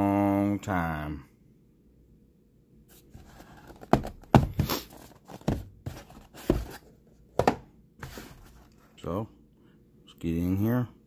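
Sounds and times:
cardboard box knocks: 3.7 - 4.8, 5.4 - 6.8.

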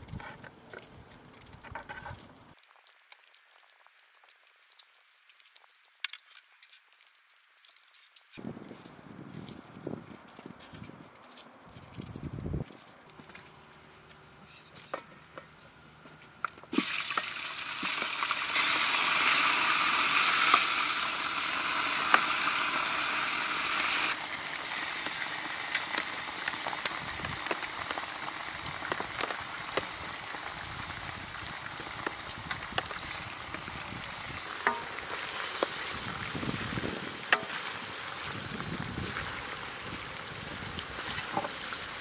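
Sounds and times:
meat sizzling in a pot: 16.6 - 42.0.

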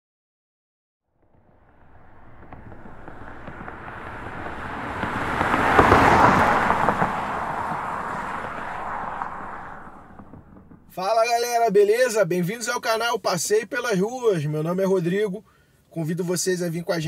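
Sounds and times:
crackling noise swell: 1.2 - 11.0.

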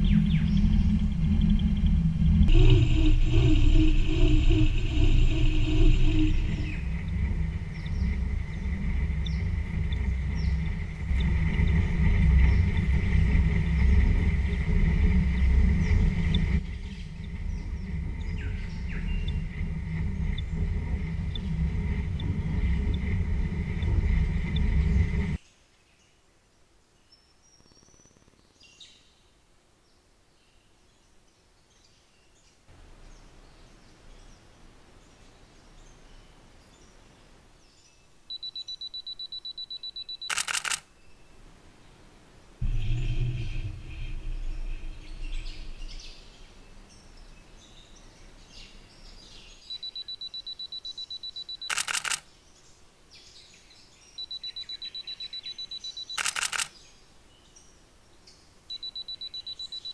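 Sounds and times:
faint bird chirps: 0.0 - 14.6, 27.0 - 29.3, 33.0 - 42.0, 42.6 - 59.9
fast-pulsing electronic tone: 0.0 - 25.4, 42.6 - 46.9
mechanical hum with low rumble: 0.0 - 25.4, 42.5 - 50.2
sharp click: 40.3 - 40.8, 51.6 - 52.2, 56.1 - 56.7.

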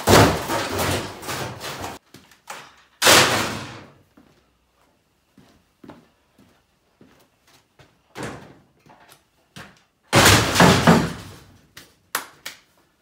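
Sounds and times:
loud metallic crash and rattle: 0.0 - 2.0, 3.0 - 3.9, 10.1 - 11.5.

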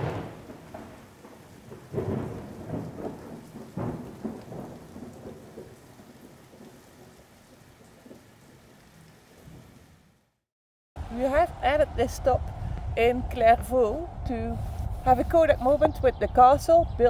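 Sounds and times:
rain hiss: 0.0 - 10.4, 11.0 - 16.8
wind gusts buffeting microphone: 11.0 - 17.0.

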